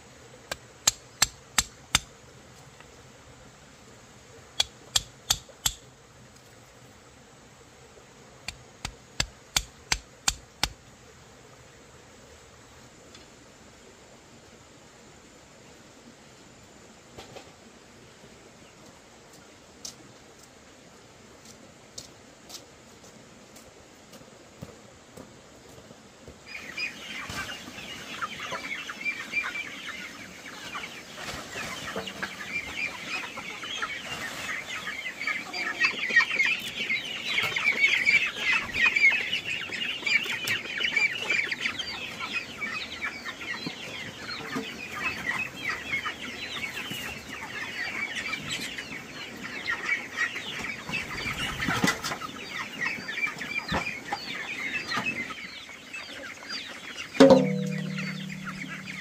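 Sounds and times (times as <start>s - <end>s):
young chickens chirping and clucking: 26.3s - 59.0s.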